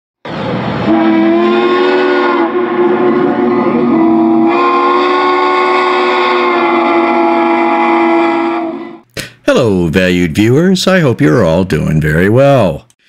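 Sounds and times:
steam locomotive chime whistle: 0.8 - 9.0.

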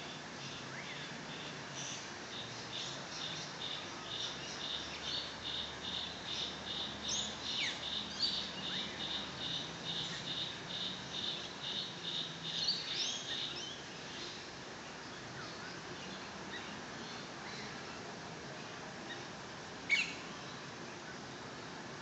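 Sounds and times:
insect chirping: 0.4 - 13.9.

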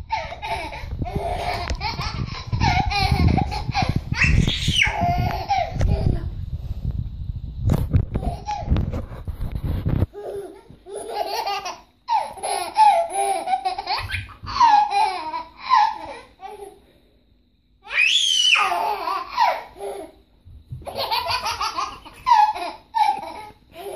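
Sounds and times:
baby laughing: 0.0 - 6.3, 8.2 - 8.8, 10.1 - 16.8, 18.5 - 20.2, 20.8 - 23.9
baby squealing: 4.1 - 5.6, 17.9 - 20.0.

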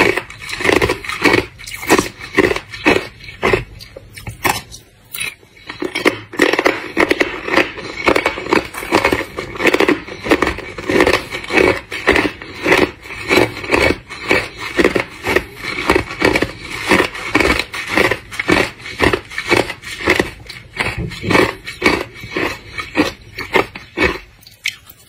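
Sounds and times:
ice being crunched by chewing: 0.0 - 25.0.

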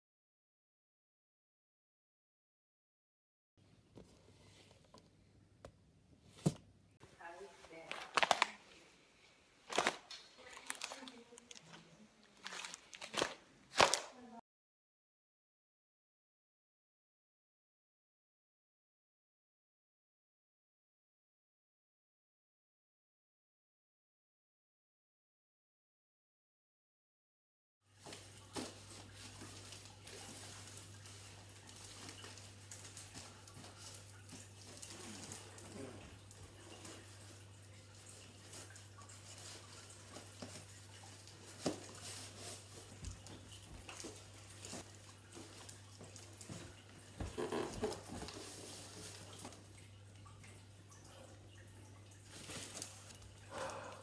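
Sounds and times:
cardboard rustling and tapping: 41.4 - 49.6.

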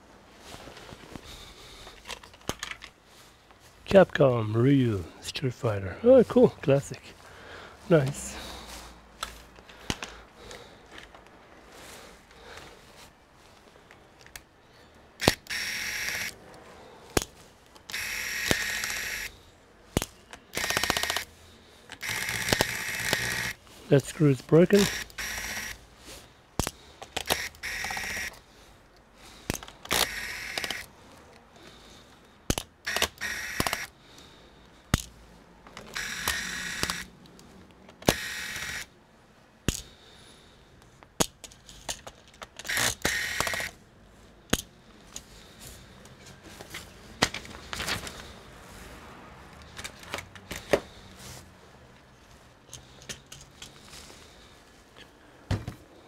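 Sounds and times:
small screws rattling: 17.2 - 21.3, 21.9 - 23.6, 26.6 - 28.4, 29.4 - 30.9, 41.2 - 43.8
plastic clicks: 29.4 - 31.4, 32.5 - 34.0.

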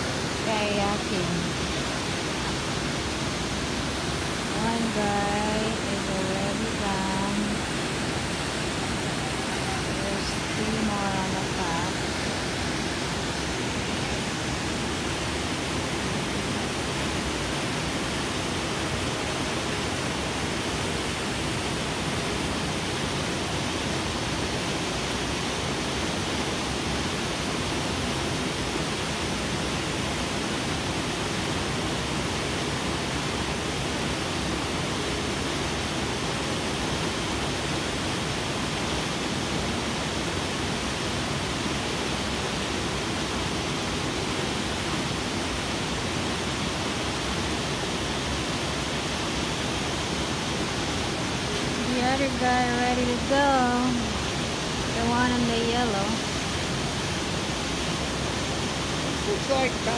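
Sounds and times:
waterfall pouring over rocks: 0.0 - 59.9.

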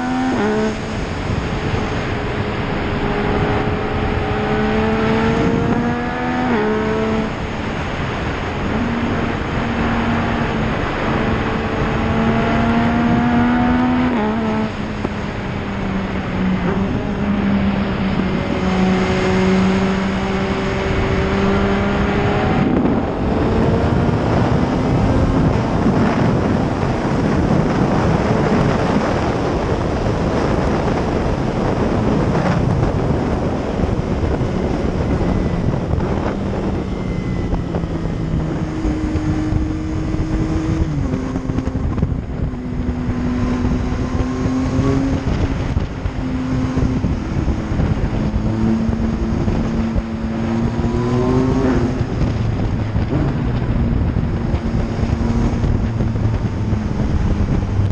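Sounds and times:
heavy wind noise: 0.0 - 57.9
motorcycle engine running: 14.5 - 57.9.

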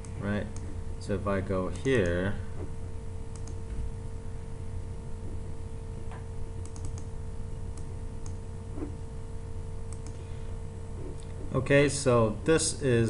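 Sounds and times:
low electrical hum: 0.0 - 13.0
keyboard and mouse clicks: 3.3 - 3.6, 6.1 - 7.1, 9.9 - 10.2.

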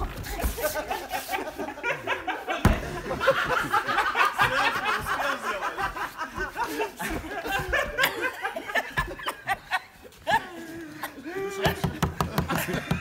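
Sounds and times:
people talking: 0.0 - 2.0, 2.7 - 8.4
people laughing: 0.0 - 13.0.

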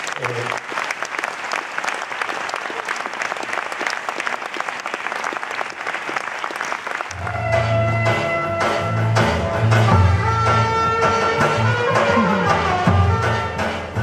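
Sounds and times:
audience applauding: 0.0 - 7.6
guitar and bass music: 7.2 - 14.0.

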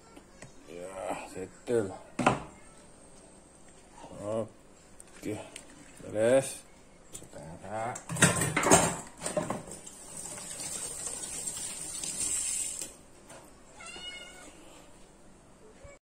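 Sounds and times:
cat meowing: 13.8 - 14.8.

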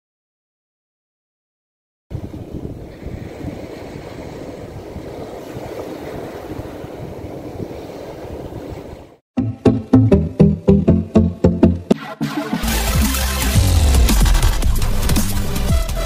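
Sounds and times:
sea surf washing: 2.1 - 9.2
wind rumbling on microphone: 2.1 - 9.2.

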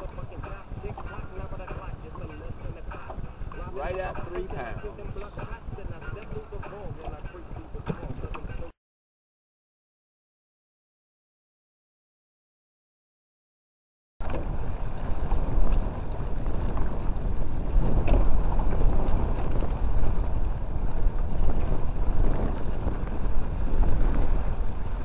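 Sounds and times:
wind buffeting microphone: 0.0 - 8.7, 14.2 - 25.0.

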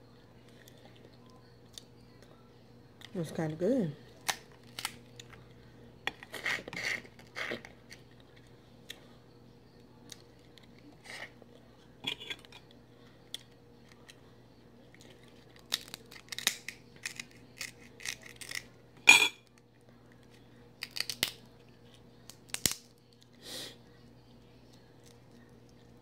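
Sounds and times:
crab shell cracking: 4.2 - 5.4, 15.3 - 18.7, 20.8 - 21.5, 22.2 - 23.3.

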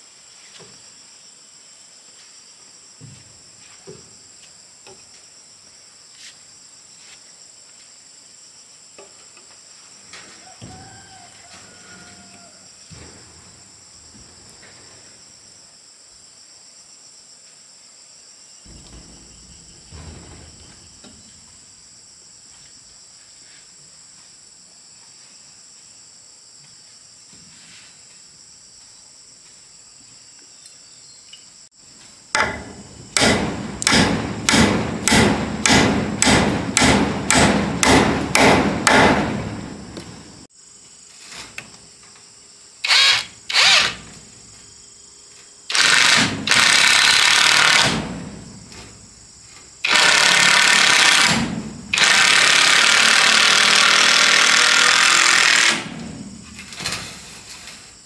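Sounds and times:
crickets chirring: 0.0 - 58.0
power drill bursts: 42.8 - 44.1, 45.7 - 48.0, 49.8 - 56.0.

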